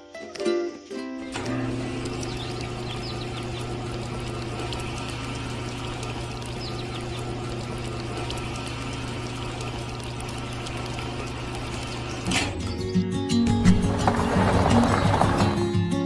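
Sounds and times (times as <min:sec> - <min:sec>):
small electric motor humming: 0:01.3 - 0:12.3
wet cement sloshing in drum: 0:13.6 - 0:15.6.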